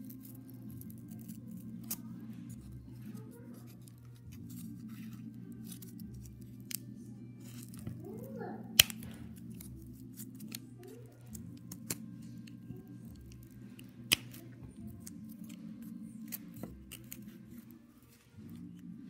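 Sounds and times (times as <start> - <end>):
steady low hum: 0.0 - 19.0
scissors snipping cardboard: 8.8 - 10.6, 11.3 - 18.8.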